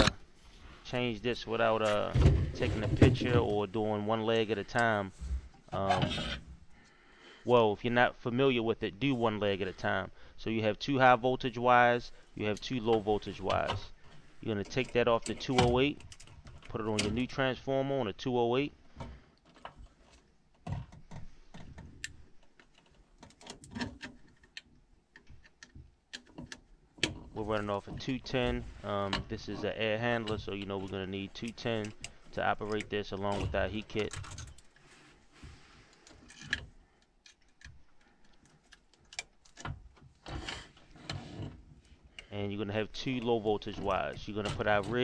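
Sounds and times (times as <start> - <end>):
clicks and rattles of wiring: 12.5 - 17.3, 18.9 - 35.0, 35.8 - 42.4.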